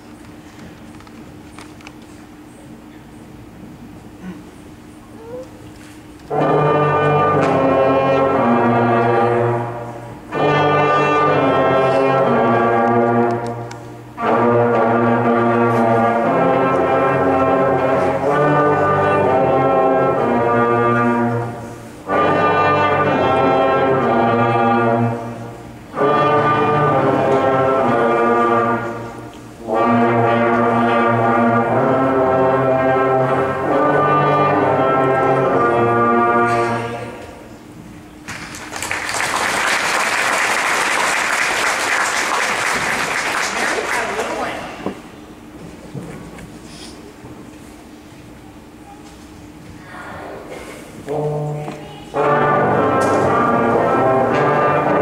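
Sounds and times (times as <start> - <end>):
brass ensemble playing chords: 6.2 - 37.8, 50.5 - 55.0.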